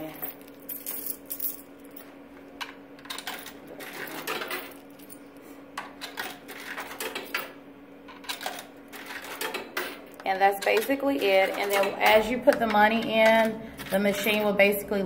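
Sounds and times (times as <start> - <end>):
coins clinking into vending machine: 0.0 - 14.9.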